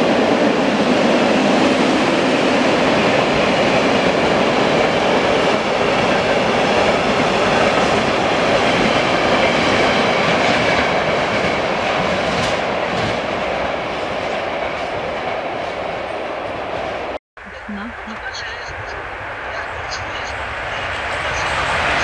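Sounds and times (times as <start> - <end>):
train wheels running on rails: 0.0 - 22.0.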